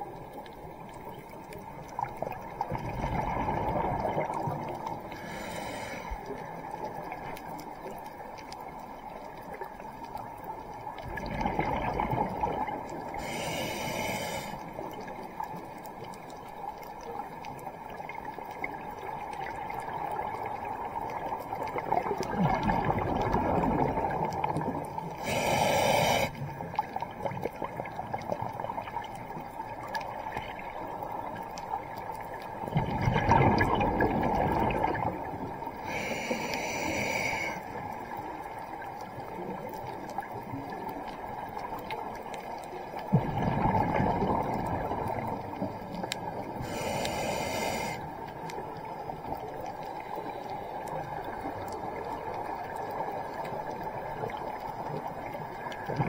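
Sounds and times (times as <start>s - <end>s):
gurgling exhaled bubbles: 1.9s - 7.2s, 11.0s - 14.6s, 18.8s - 31.2s, 31.9s - 37.6s, 42.9s - 48.1s
regulator air hiss: 5.2s - 6.2s, 13.2s - 14.7s, 25.2s - 26.4s, 35.8s - 37.6s, 46.6s - 48.1s.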